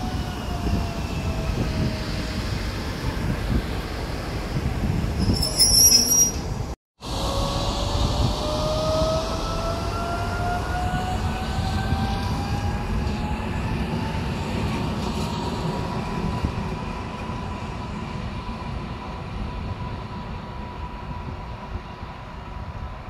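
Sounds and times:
wheels rumbling on rails: 0.0s - 23.0s.

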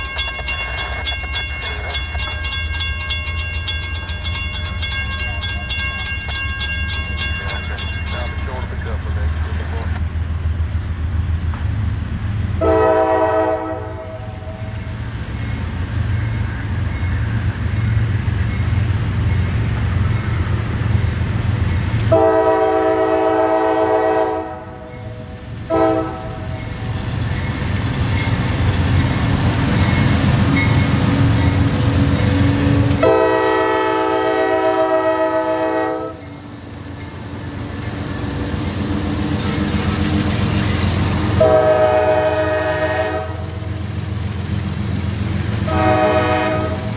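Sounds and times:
train rumbling: 0.0s - 46.9s
locomotive horn blasts: 12.6s - 14.7s, 22.1s - 24.9s, 25.6s - 26.5s, 33.0s - 36.2s, 41.4s - 43.6s, 45.6s - 46.9s.

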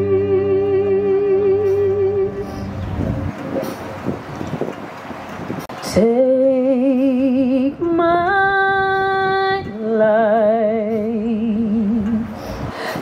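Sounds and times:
woman singing with vibrato: 0.0s - 2.7s, 5.8s - 13.0s.

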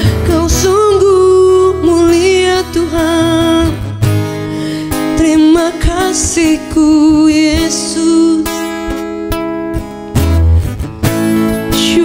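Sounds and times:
woman singing with vibrato: 0.0s - 9.1s, 11.6s - 12.0s
strummed acoustic guitar: 0.0s - 12.0s.

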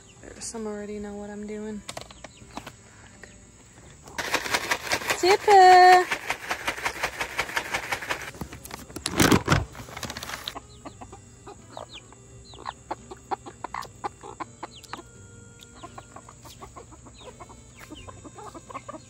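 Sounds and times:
chickens clucking: 0.0s - 19.0s
bag rustling: 4.2s - 10.6s.

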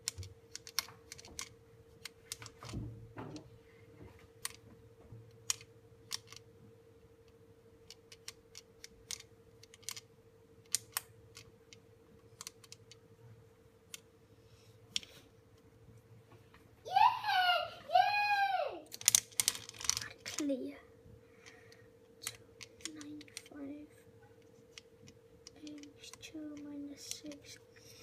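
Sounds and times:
abacus beads clicking: 0.0s - 2.6s, 5.4s - 6.4s, 7.8s - 13.0s, 18.9s - 20.6s, 21.4s - 23.6s, 24.5s - 27.9s
faint steady hum: 0.0s - 28.0s.

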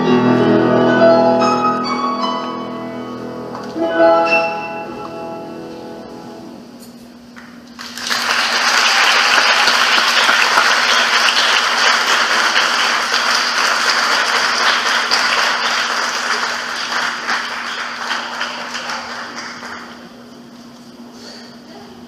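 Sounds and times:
audience applauding: 7.4s - 20.3s.

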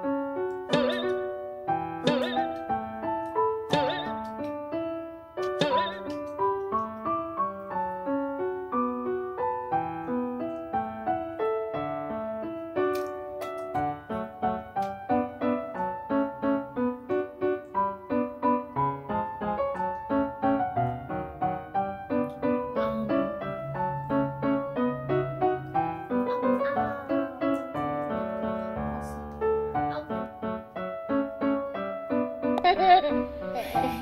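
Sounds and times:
piano waltz: 0.0s - 34.0s.

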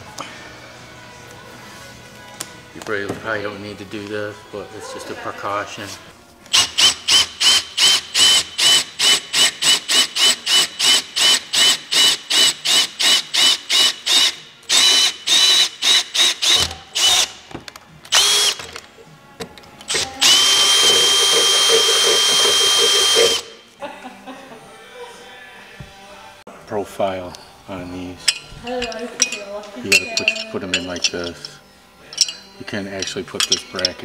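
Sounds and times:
cordless drill whining: 6.5s - 17.3s, 18.1s - 18.6s, 19.9s - 23.5s.

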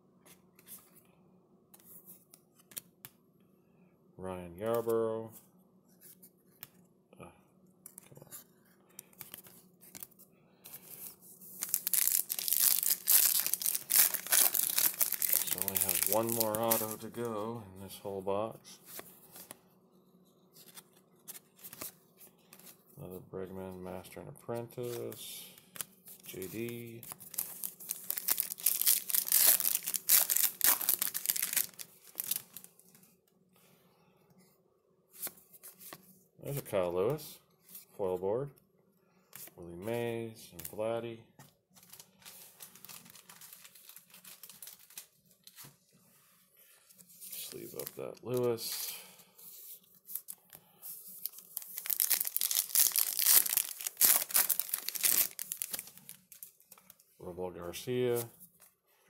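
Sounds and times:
plastic crinkling and rustling: 9.1s - 17.2s, 25.7s - 33.1s, 41.7s - 45.8s, 49.6s - 57.1s
wrapper tearing and crackling: 11.5s - 17.0s, 27.1s - 32.7s, 41.8s - 45.2s, 51.2s - 56.9s.

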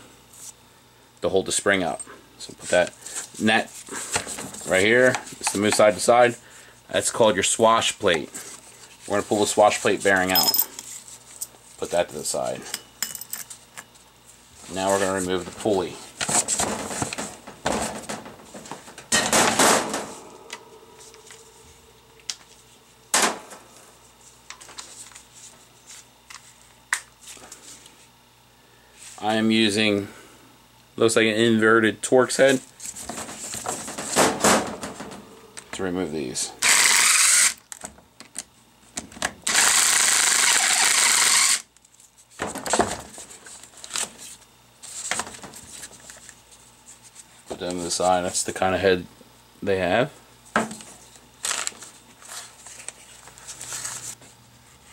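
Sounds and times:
cordless drill running: 36.6s - 37.6s, 39.5s - 41.6s
paper rustling: 51.4s - 54.3s.

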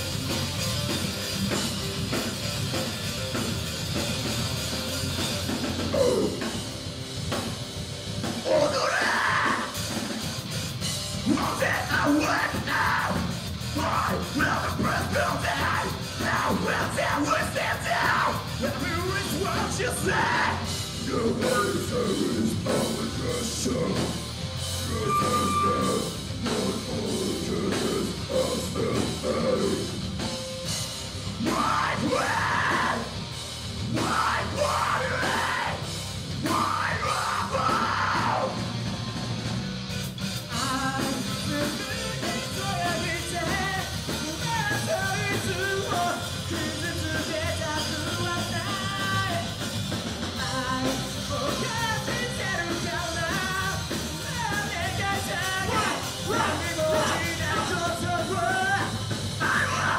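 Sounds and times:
rock band playing live: 0.0s - 59.9s
person singing: 8.4s - 10.0s, 11.2s - 24.2s, 24.8s - 30.1s, 31.4s - 33.2s, 33.9s - 38.6s, 40.5s - 49.5s, 50.4s - 59.9s.

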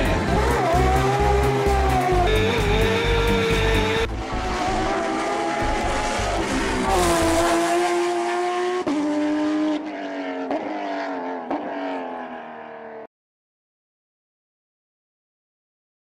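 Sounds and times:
race car engine at high revs: 0.0s - 13.1s.

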